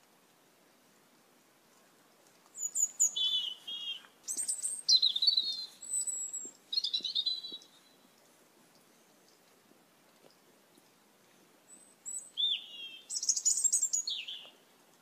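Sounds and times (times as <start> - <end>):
starlings whistling calls: 2.6 - 7.8, 12.0 - 14.5.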